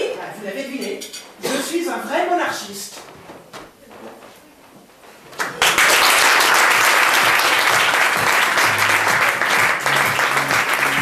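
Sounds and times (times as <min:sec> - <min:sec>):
audience applause: 0:05.4 - 0:11.0.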